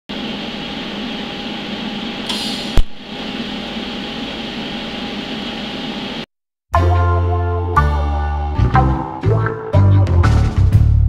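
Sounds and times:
welding arc hissing: 0.2 - 6.2.

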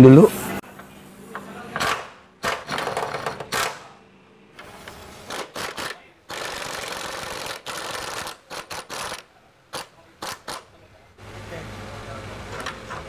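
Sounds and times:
sharp clacks: 5.3 - 10.7.

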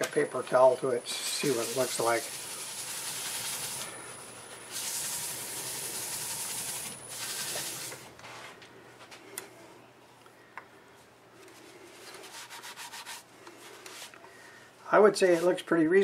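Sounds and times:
thin high whine: 0.0 - 8.2
paper towel rubbing spinning wood: 1.2 - 4.0, 4.6 - 8.0, 12.0 - 14.1.

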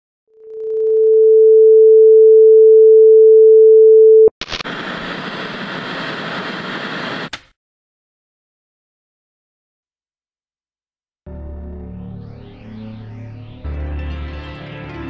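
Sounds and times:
tv static hiss: 4.4 - 7.3.

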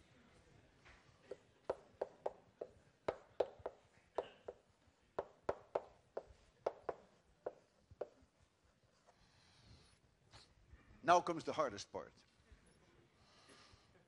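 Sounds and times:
chalk tapping on blackboard: 1.3 - 8.3.

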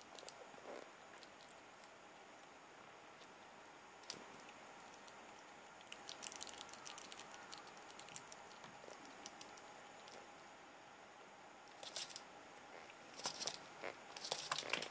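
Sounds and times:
squirrel chewing wet clicks: 0.0 - 0.5, 1.1 - 2.6, 3.2 - 10.4.

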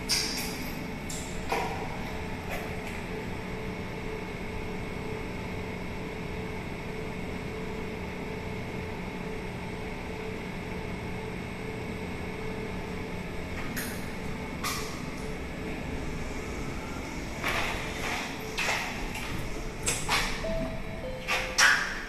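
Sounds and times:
elevator machinery hum: 0.0 - 22.0
elevator doors swishing open: 17.4 - 22.0.

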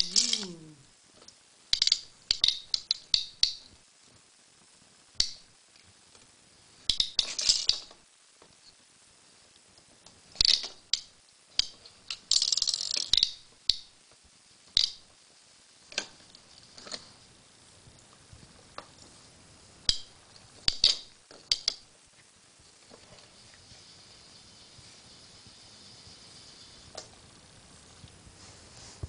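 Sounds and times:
plastic toy rollers rattling: 0.0 - 0.6, 6.9 - 8.0, 10.4 - 13.4.

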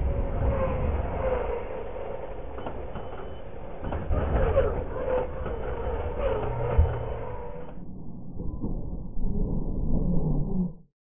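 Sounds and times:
electric motors whining: 0.0 - 7.8.

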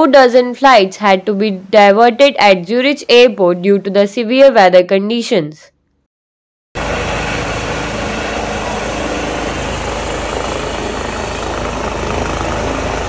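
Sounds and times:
helicopter turbines and rotors: 6.8 - 13.0.

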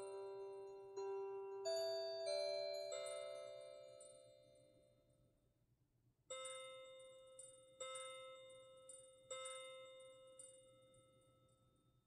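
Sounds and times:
clock chime melody: 0.0 - 4.2.

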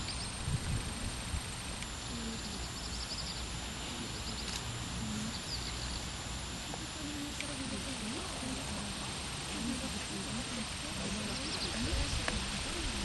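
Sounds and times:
faint bird chirps: 0.0 - 0.6, 1.9 - 8.2, 11.0 - 12.2
steady background noise: 0.0 - 13.0
faint distant voices: 0.7 - 13.0.

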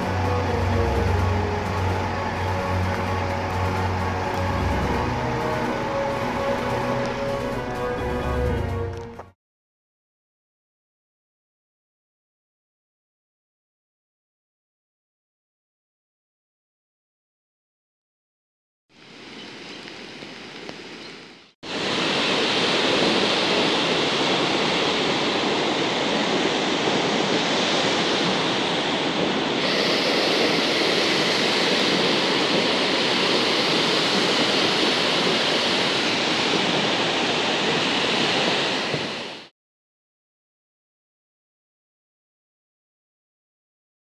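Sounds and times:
flooded river rushing: 0.0 - 9.3, 21.7 - 39.5.

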